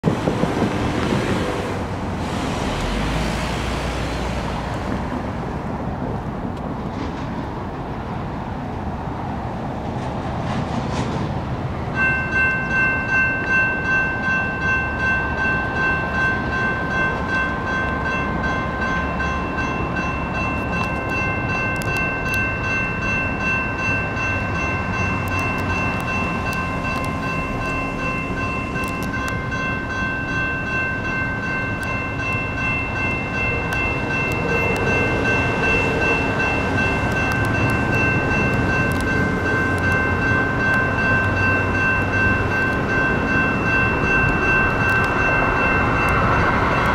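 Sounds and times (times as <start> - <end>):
light rail train rumbling: 0.0 - 46.9
crossing bells ringing: 11.9 - 46.9.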